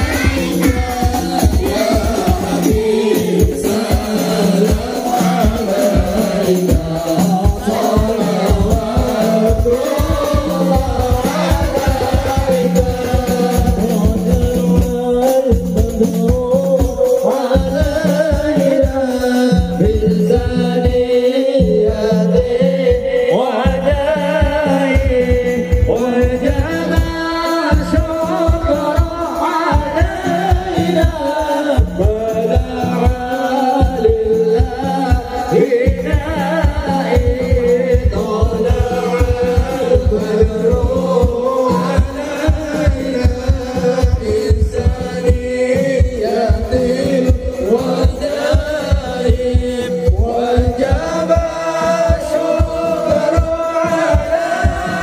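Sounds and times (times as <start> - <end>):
group chanting together: 0.0 - 14.8, 26.5 - 55.0
fast hand-drum beat: 0.0 - 55.0.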